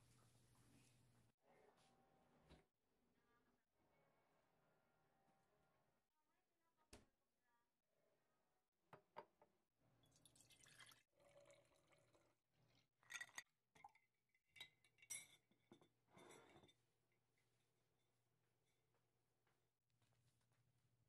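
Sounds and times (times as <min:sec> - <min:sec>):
juice pouring into glass jar: 0:10.0 - 0:14.0.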